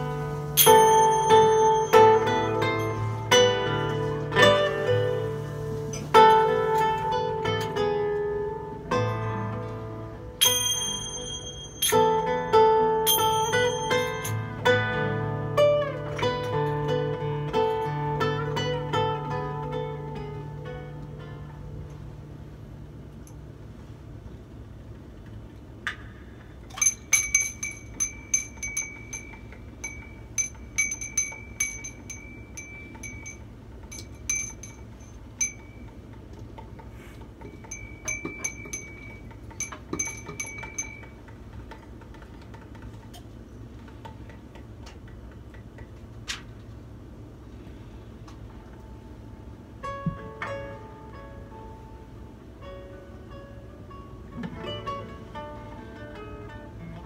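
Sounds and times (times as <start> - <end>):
small chime tinkling: 0.6 - 3.2, 10.4 - 12.2, 13.1 - 14.4, 26.7 - 36.0, 37.5 - 41.2.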